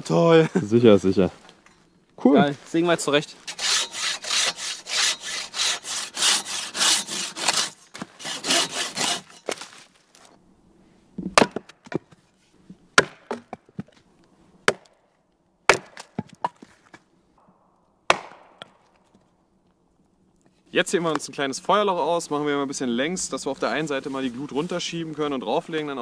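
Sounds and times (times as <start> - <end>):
handsaw cutting log: 3.5 - 9.7
hatchet splitting log: 3.5 - 9.7, 11.2 - 12.2, 13.0 - 13.9, 14.6 - 15.0, 15.7 - 16.7, 18.1 - 18.9.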